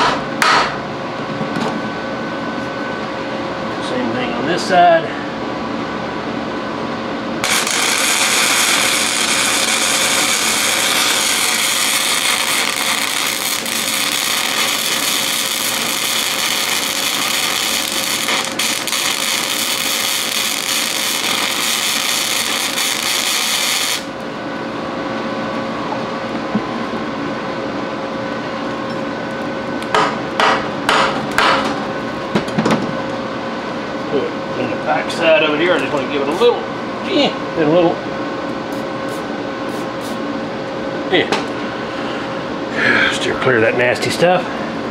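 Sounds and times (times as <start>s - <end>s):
steady hum: 0.0s - 44.9s
arc welding crackling and hissing: 7.4s - 24.2s.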